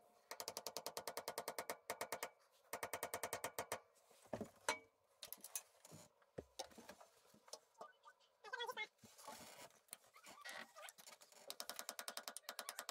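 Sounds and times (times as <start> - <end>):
metallic knocks and clanks of tools: 4.4 - 5.7.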